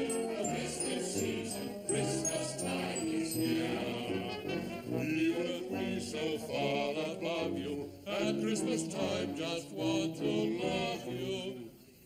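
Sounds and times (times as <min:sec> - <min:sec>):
high tinkling bell notes: 0:00.0 - 0:04.8
instrumental backing music: 0:00.0 - 0:07.4
group of voices singing: 0:00.0 - 0:11.8.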